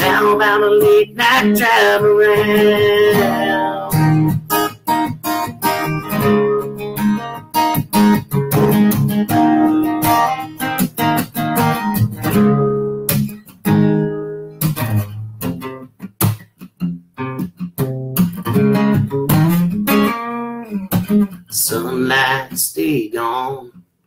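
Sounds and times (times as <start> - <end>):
acoustic guitar strumming: 0.0 - 23.7.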